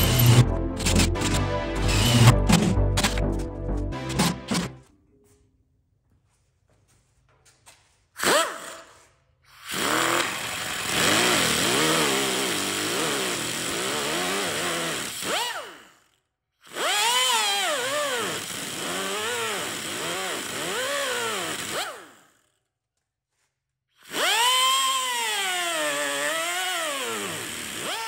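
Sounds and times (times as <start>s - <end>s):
angle grinder cutting metal: 0.0s - 4.8s, 9.6s - 15.7s, 16.7s - 22.1s, 24.1s - 28.0s.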